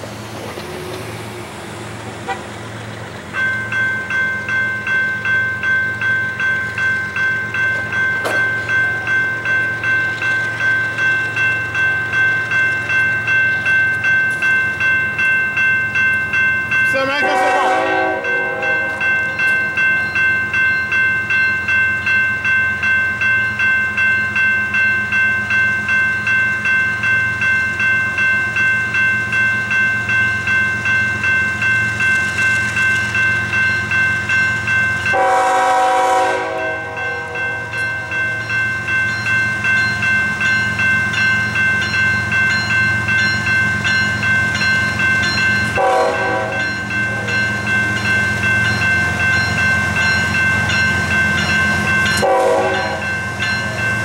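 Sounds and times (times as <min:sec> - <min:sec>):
crossing bell ringing: 0:00.0 - 0:54.0
locomotive engine rumble: 0:00.0 - 0:54.0
locomotive air horn blasts: 0:02.2 - 0:02.5, 0:17.2 - 0:19.0, 0:35.1 - 0:37.4, 0:45.8 - 0:46.6, 0:52.2 - 0:53.1.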